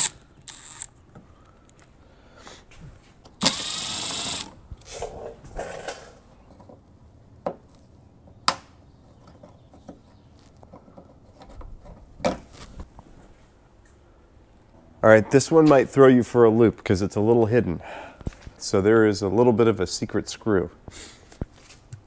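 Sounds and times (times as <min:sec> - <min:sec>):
cordless screwdriver running: 0:00.0 - 0:00.9, 0:03.4 - 0:04.5.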